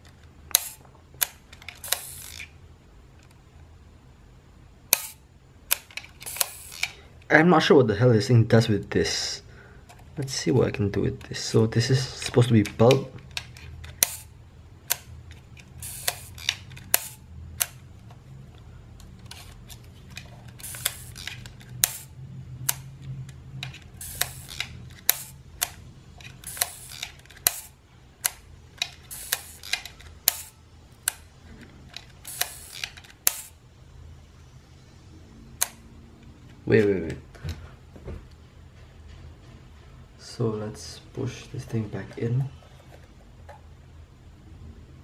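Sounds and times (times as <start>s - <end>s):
camera shutter clicks and rasps: 0.5s - 2.5s, 4.9s - 7.0s, 12.7s - 14.3s, 14.9s - 17.8s, 19.2s - 22.1s, 23.7s - 27.8s, 28.8s - 30.6s, 32.0s - 33.6s.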